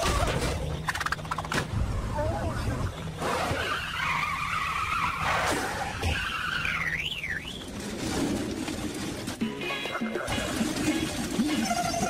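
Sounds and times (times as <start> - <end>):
cartoon tyres screeching: 0.0 - 8.3
warbling squeal: 3.2 - 7.7.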